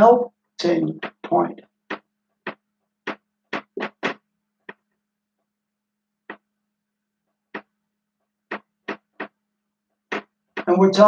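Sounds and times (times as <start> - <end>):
marker writing on whiteboard: 0.6 - 5.0, 6.3 - 6.5, 7.5 - 7.8, 8.5 - 10.9.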